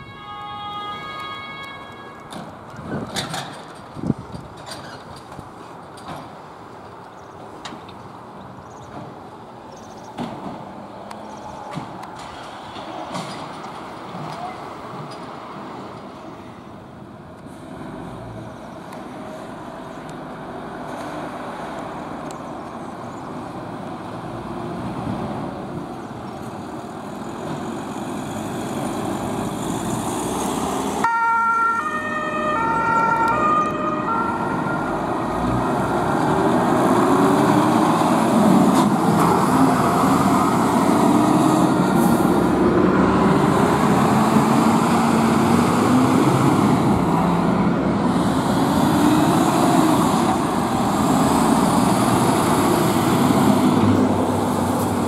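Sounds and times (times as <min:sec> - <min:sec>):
two-tone siren: 0:00.0 - 0:02.3, 0:31.0 - 0:35.7
fire engine diesel engines: 0:00.0 - 0:55.0
heavy truck accelerating past: 0:27.0 - 0:31.1, 0:32.5 - 0:55.0.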